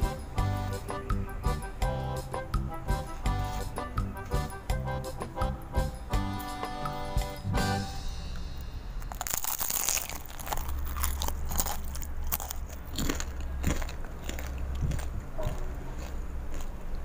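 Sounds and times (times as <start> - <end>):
crunching of fried snacks: 9.0 - 17.0.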